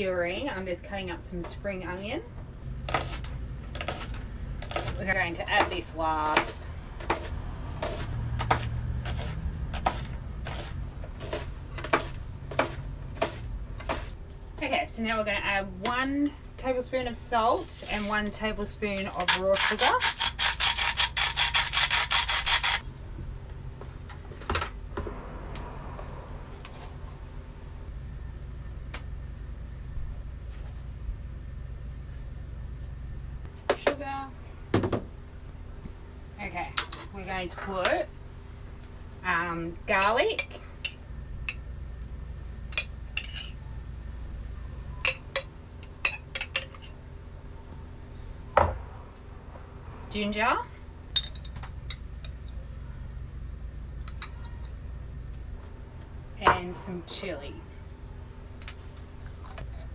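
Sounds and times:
rhythmic rasping food preparation: 2.6s - 14.2s, 17.6s - 22.8s
utensils clinking against dishes: 45.0s - 47.0s.

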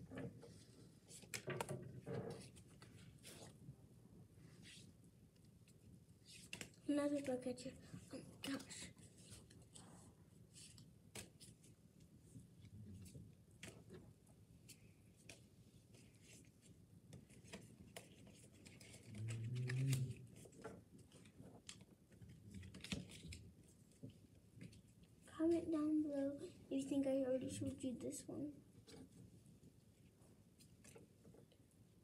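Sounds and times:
trading cards clicking and rustling: 17.2s - 23.4s.

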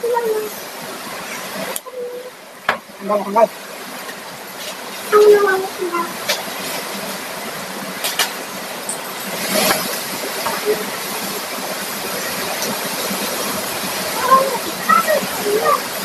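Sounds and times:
heavy rain and wind: 0.0s - 16.0s.

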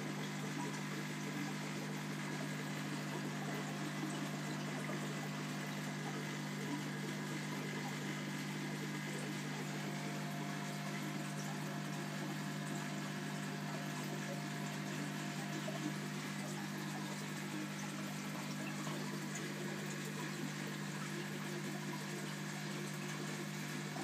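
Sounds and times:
aquarium filter water rushing: 0.0s - 24.0s
pump humming: 0.0s - 24.0s.

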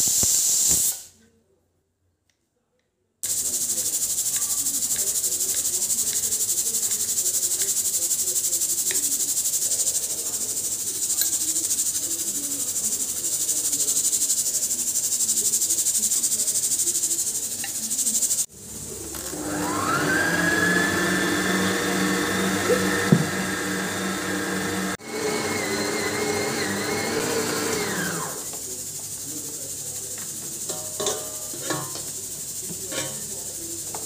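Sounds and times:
steady high hiss: 0.0s - 1.2s, 3.2s - 19.0s.

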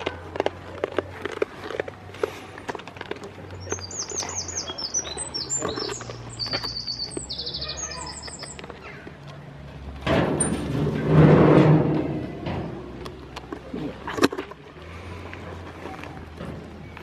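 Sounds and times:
small bird chirping and trilling: 3.6s - 8.6s.

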